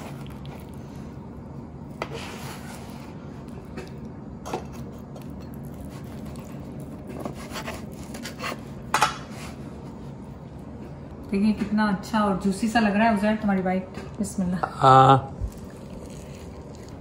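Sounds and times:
knife sawing through crusty bread: 0:05.8 - 0:08.7.

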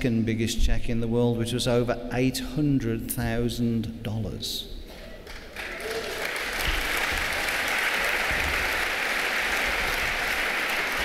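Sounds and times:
audience clapping: 0:04.9 - 0:11.0.

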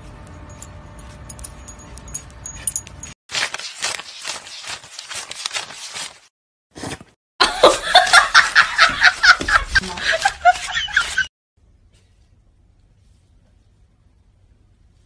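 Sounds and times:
low background hum: 0:00.0 - 0:03.1.

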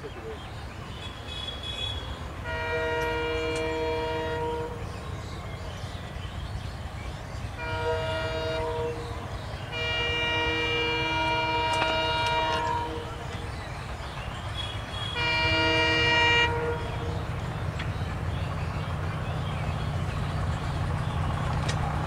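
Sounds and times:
low locomotive rumble: 0:00.0 - 0:22.0
locomotive air horn blasts: 0:02.4 - 0:04.8, 0:07.6 - 0:13.3, 0:15.0 - 0:17.2.

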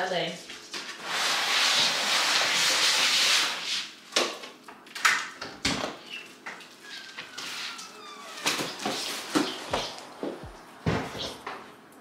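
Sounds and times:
faint high squeak: 0:06.8 - 0:08.8.

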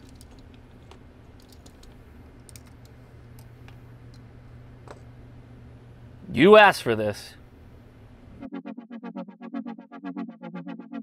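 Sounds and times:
faint low hum: 0:00.0 - 0:08.4.

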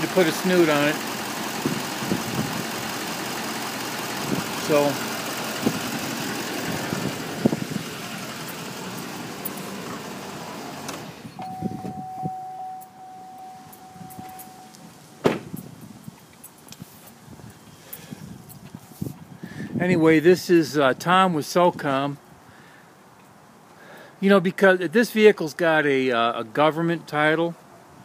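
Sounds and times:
diesel truck engine idling: 0:00.0 - 0:15.8
truck door shutting: 0:09.0 - 0:15.7
electronic warning tone: 0:11.3 - 0:14.9.

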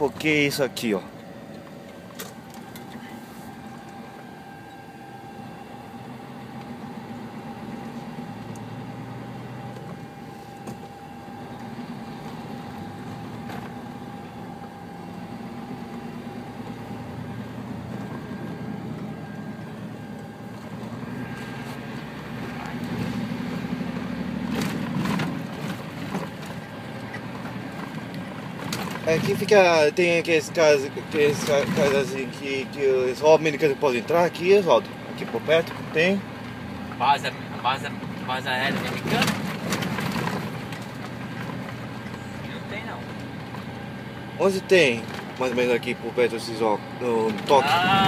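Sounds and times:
faint steady whine: 0:00.0 - 0:24.0, 0:25.6 - 0:39.2
truck engine and road noise: 0:00.0 - 0:48.0.

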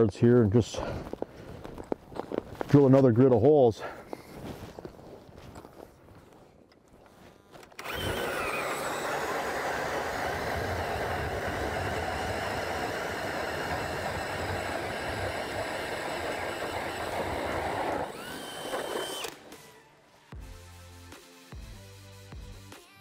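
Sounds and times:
auger blades cutting ice: 0:07.7 - 0:19.7
drill motor whine: 0:07.7 - 0:19.9.

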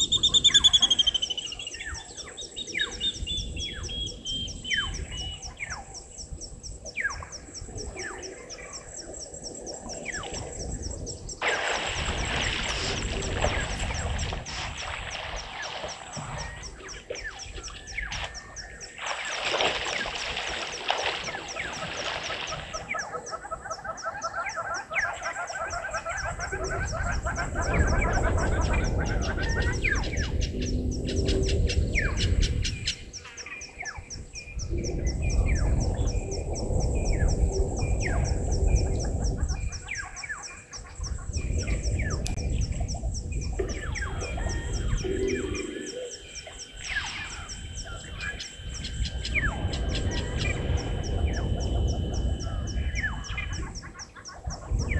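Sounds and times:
birds chirping and calling: 0:00.0 - 0:54.9
insects ticking: 0:00.0 - 0:54.9
low rumbling noise: 0:41.0 - 0:54.9.

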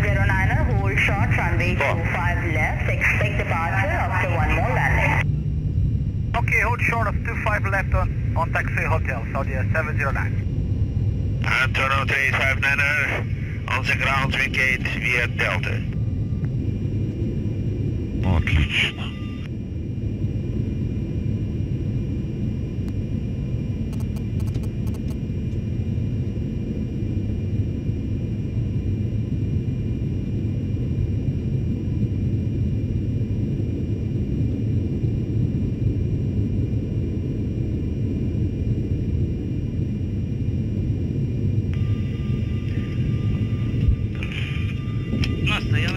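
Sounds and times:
jet engines low rumble: 0:00.0 - 0:45.9.

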